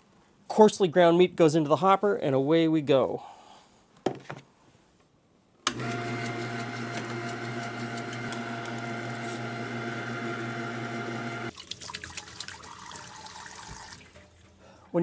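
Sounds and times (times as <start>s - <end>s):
electric meat grinder motor humming: 5.7s - 11.5s.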